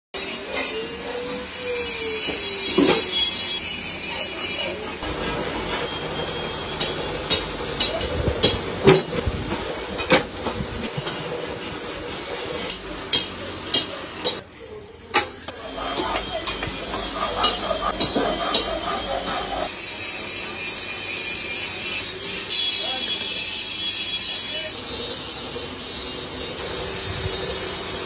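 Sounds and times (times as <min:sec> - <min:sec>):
hiss: 0:25.4 - 0:28.0.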